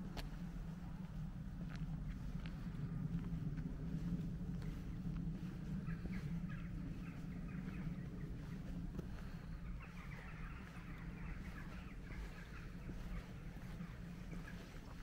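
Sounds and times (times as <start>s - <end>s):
steady low rumble: 0.0s - 15.0s
birds chirping: 3.9s - 15.0s.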